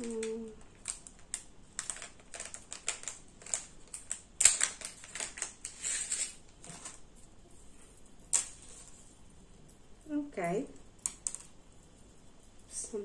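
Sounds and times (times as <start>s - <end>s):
packaging rustling: 0.0s - 7.2s.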